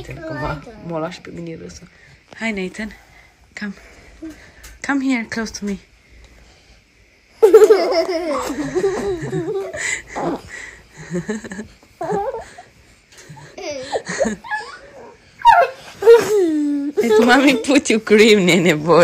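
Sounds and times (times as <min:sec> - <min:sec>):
toddler laughing: 0:07.4 - 0:10.4, 0:12.0 - 0:12.6, 0:13.3 - 0:17.6.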